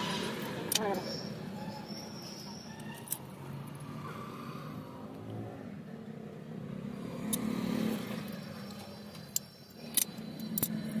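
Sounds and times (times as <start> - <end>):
motor vehicle passing by: 3.2 - 9.1.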